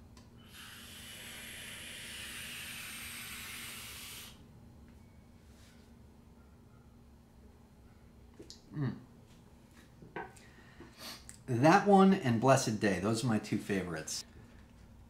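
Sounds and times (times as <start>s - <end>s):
vape hissing: 0.4s - 4.4s.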